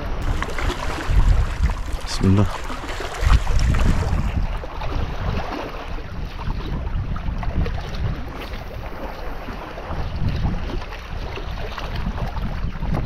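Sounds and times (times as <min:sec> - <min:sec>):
sea surf washing: 0:00.0 - 0:06.2
wind buffeting microphone: 0:00.0 - 0:13.0.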